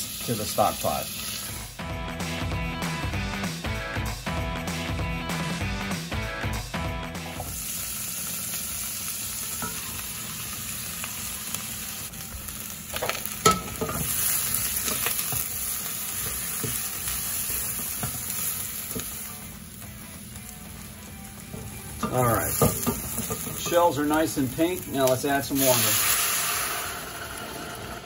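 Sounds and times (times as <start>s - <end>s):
vegetables sizzling in oil: 0.0s - 1.8s, 7.2s - 28.0s.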